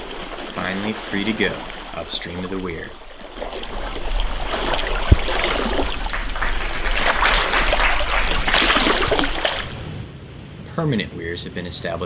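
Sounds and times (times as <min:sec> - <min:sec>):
creek water rushing and splashing: 0:00.0 - 0:10.0
sharp low thump: 0:04.7 - 0:06.4.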